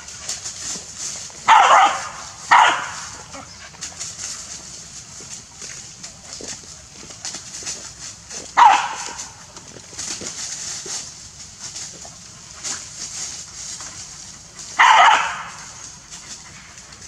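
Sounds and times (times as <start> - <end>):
light rustling: 0.0 - 17.0
dog barking: 1.4 - 3.5, 8.6 - 9.3, 14.8 - 15.8.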